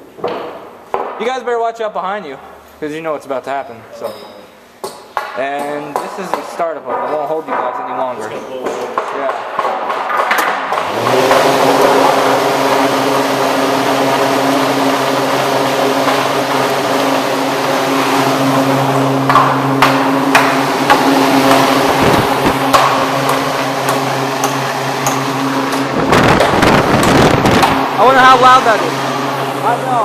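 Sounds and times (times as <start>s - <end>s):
electric motor hum: 9.6s - 30.0s
box fan air rushing: 10.0s - 30.0s.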